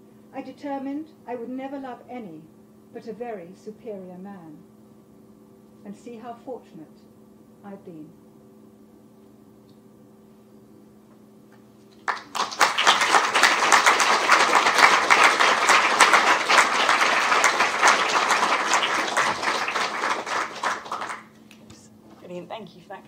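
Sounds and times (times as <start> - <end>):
audience applauding: 12.0 - 21.4.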